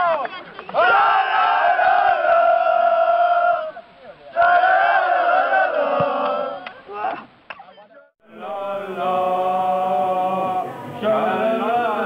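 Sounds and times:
men chanting together: 4.4s - 6.6s, 8.2s - 12.0s.

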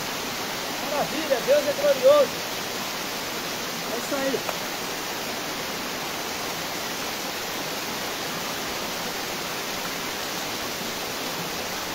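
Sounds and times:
waterfall rushing: 0.0s - 11.9s.

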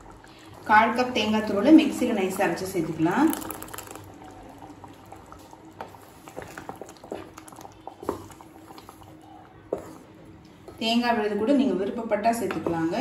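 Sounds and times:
thick curry bubbling in a pot: 0.0s - 10.9s.

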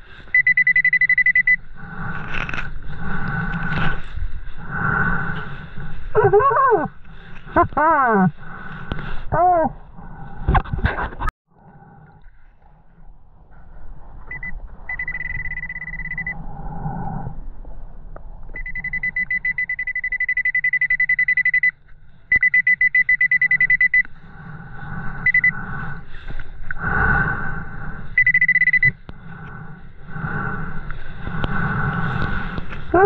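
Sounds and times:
metal detector pulsing buzz: 0.3s - 1.8s, 14.3s - 16.4s, 18.6s - 21.7s, 22.3s - 24.1s, 25.2s - 25.6s, 28.2s - 29.1s
muffled underwater rumble: 1.4s - 20.3s, 23.8s - 33.0s.

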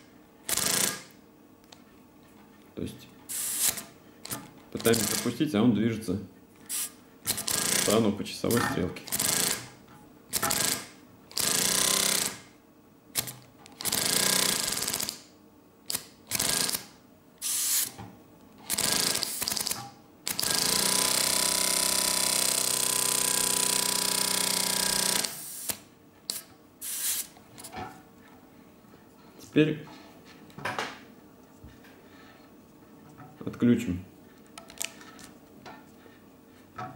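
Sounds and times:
pneumatic engine chattering: 3.3s - 5.4s.

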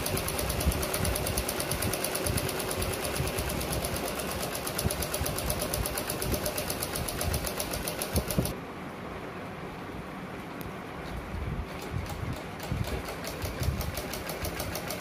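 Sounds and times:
sewing machine needle ticking: 0.0s - 8.5s, 12.0s - 15.0s.

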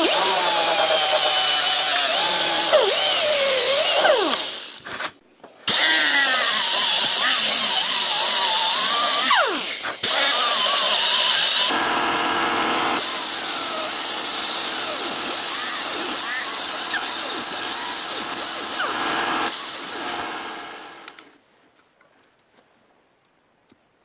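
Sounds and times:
power tool grinding metal: 0.0s - 4.8s, 5.7s - 21.1s.

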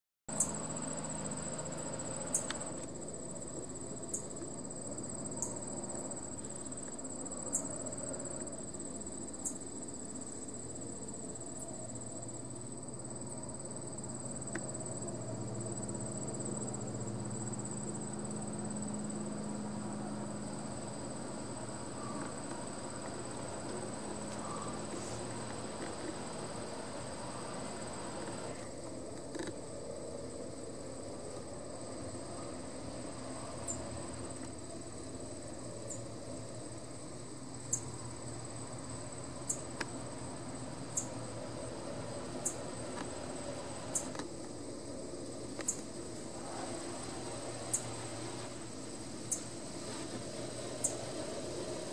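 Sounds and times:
high-pitched insect trill: 0.3s - 51.9s
low engine-like hum: 0.3s - 51.9s.

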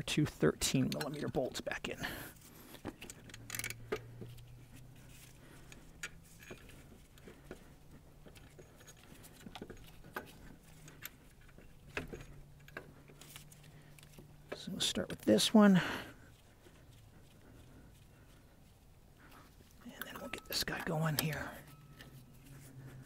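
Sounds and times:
metal bolts clicking: 0.6s - 1.6s, 2.9s - 4.2s, 19.9s - 22.2s.

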